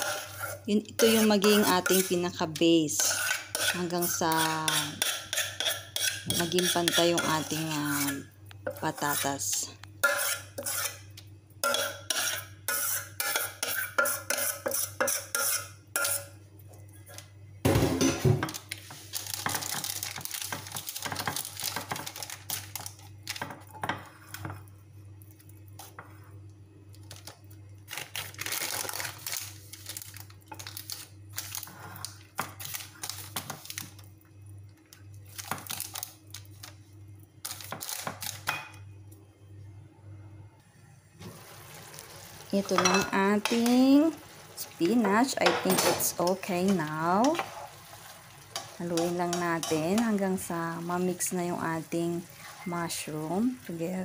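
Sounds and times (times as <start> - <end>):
spoon scraping mashed potato: 0.0 - 16.4
metal spoon clinking on dish: 42.8 - 43.6.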